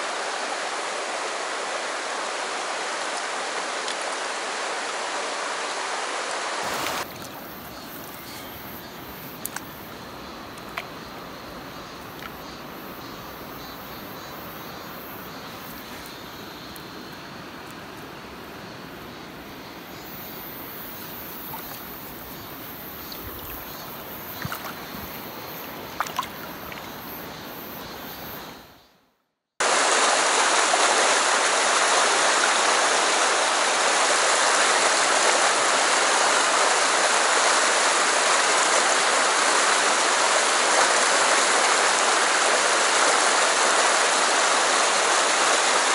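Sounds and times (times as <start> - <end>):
stream rapids rushing: 0.0 - 14.2, 29.6 - 45.9
stream water running: 0.0 - 28.9, 29.6 - 45.9
light water splashes: 6.6 - 11.3, 20.9 - 27.0.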